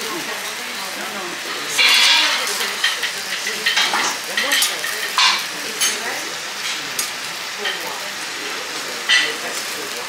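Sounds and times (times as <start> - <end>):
food sizzling on a griddle: 0.0 - 10.0
spatulas scraping metal plate: 1.7 - 2.6.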